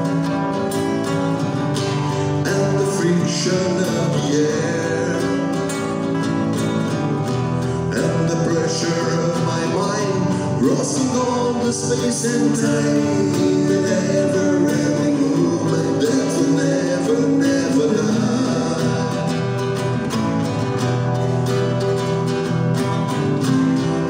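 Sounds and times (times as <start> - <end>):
acoustic guitars strumming: 0.0 - 24.0
man singing: 2.1 - 6.8, 7.6 - 20.2.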